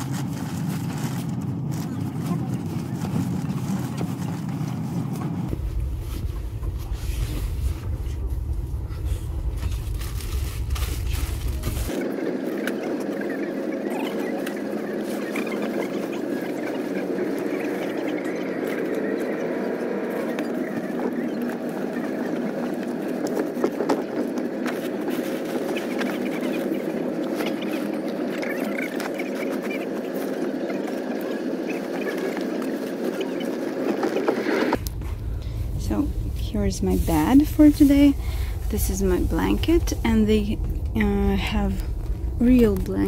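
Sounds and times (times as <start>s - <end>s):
train carriage noise: 0.0s - 43.0s
bed linen rustling: 35.0s - 41.8s.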